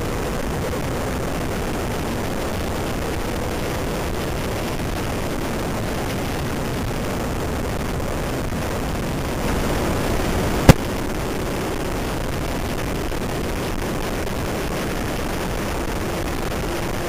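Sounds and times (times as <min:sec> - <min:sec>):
wind rush on microphone: 0:00.0 - 0:17.0
sharp pop: 0:10.6 - 0:10.8.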